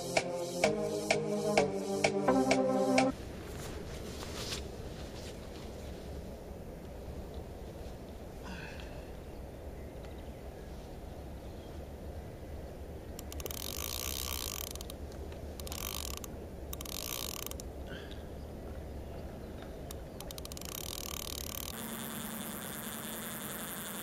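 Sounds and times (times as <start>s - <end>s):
fishing reel ratchet clicking: 13.2s - 15.0s, 15.6s - 17.7s, 19.9s - 24.0s.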